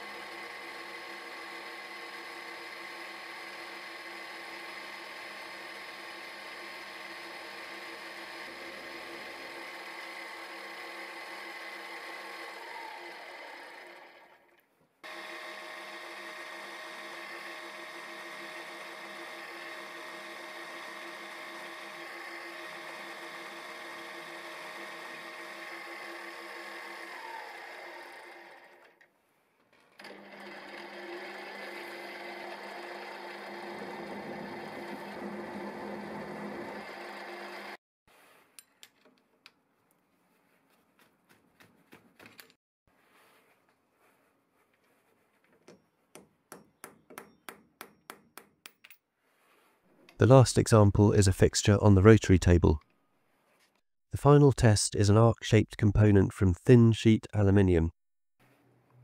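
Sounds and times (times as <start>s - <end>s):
milling machine spindle whine: 15.1s - 24.8s, 30.0s - 37.8s.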